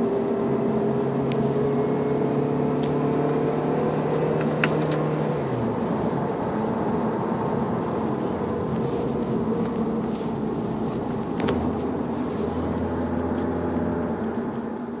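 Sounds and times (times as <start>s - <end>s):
car engine pulling uphill: 0.0s - 15.0s
road noise: 0.0s - 15.0s.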